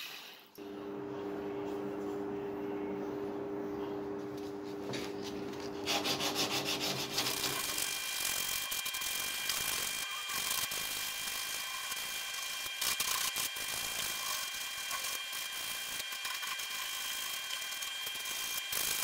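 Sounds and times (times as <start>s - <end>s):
sanding stick rubbing wood: 4.4s - 7.9s.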